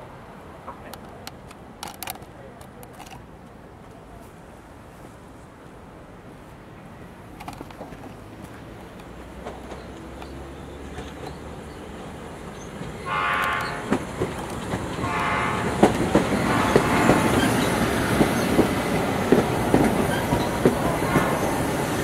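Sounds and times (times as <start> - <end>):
train rumbling: 0.0 - 22.0
wheels clicking over rail joints: 0.6 - 4.0, 7.3 - 22.0
train horn blasts: 13.0 - 14.0, 15.0 - 17.7, 21.0 - 21.7.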